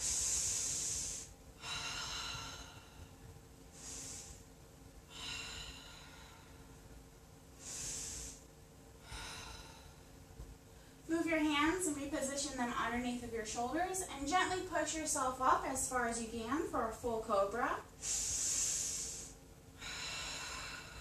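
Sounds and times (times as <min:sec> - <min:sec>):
woman breathing hissing breaths: 0:00.0 - 0:06.9, 0:07.5 - 0:11.0, 0:17.9 - 0:21.0.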